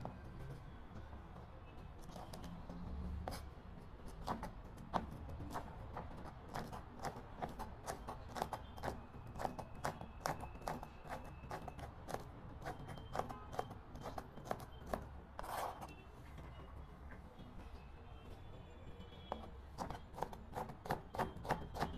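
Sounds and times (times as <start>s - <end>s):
knife chopping on cutting board: 19.4s - 21.9s.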